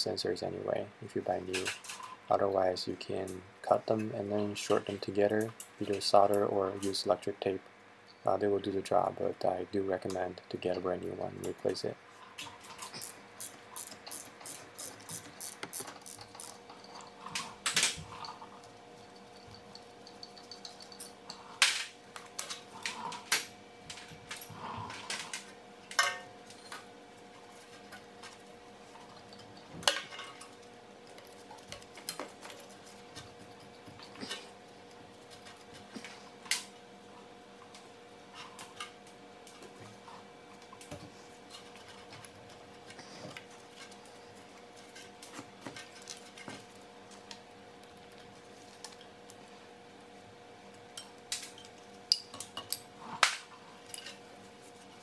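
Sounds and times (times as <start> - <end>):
ratchet wrench clicking: 13.0 - 16.6
metal clinks and knocks: 15.8 - 21.4.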